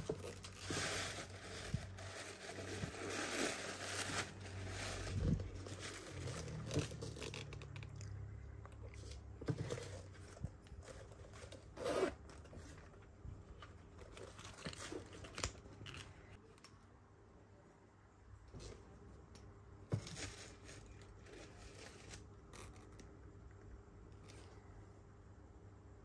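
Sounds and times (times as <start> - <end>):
bag rustling on tissue paper: 0.0 - 7.4.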